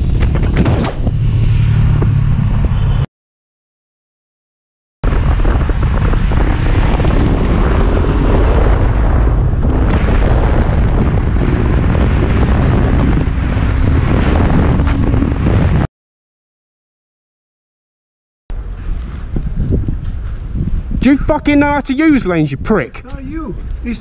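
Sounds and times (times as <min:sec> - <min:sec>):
motorcycle engine: 0:00.0 - 0:03.1, 0:05.3 - 0:15.8
wind buffeting microphone: 0:05.0 - 0:15.9, 0:18.5 - 0:24.0.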